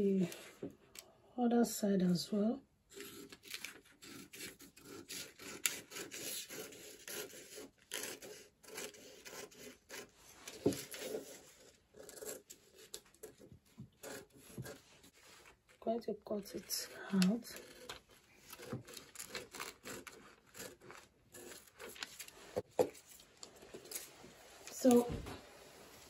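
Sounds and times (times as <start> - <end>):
scissors snipping paper: 2.9 - 14.8, 16.4 - 22.4
paper rustling and scraping: 16.6 - 26.0.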